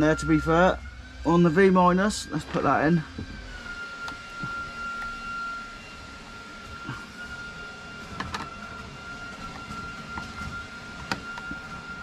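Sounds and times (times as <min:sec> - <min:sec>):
steady high-pitched whine: 0:00.0 - 0:12.0
screwdriver clicks and taps: 0:11.0 - 0:11.6.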